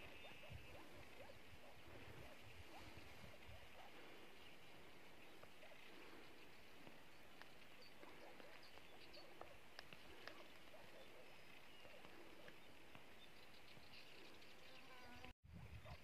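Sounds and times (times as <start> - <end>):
small chirps and clicks: 5.3 - 14.6.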